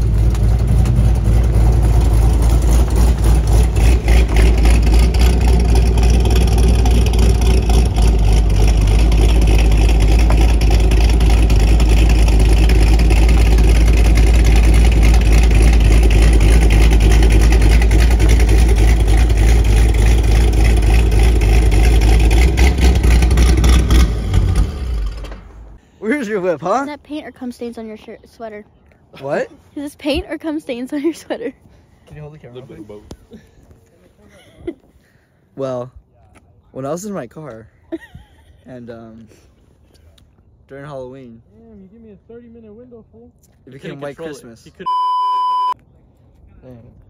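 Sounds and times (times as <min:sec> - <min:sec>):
car engine and exhaust droning: 0:00.0 - 0:25.8.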